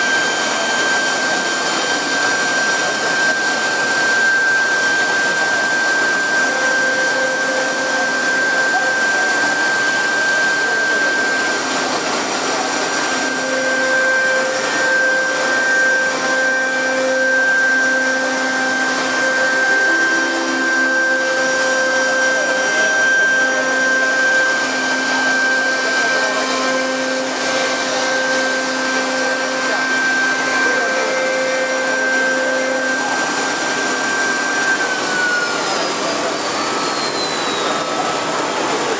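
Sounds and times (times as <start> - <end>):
low hums: 0.0 - 38.9
router spindles whining: 0.0 - 38.9.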